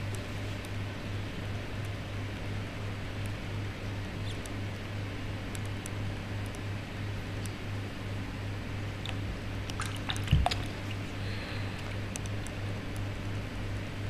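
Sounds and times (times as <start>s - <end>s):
steady low hum: 0.0s - 14.0s
water drips: 9.0s - 11.1s
water splashing in plastic tub: 9.7s - 11.1s.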